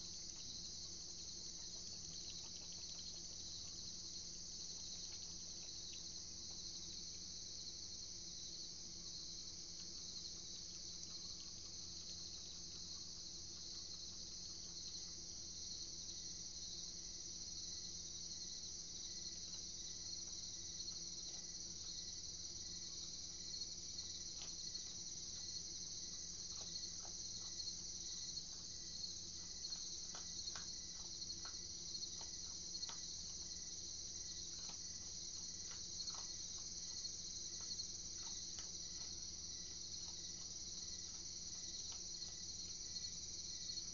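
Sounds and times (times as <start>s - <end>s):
night insects chorus: 0.0s - 43.9s
animal chewing crunchy clicks: 23.0s - 43.2s.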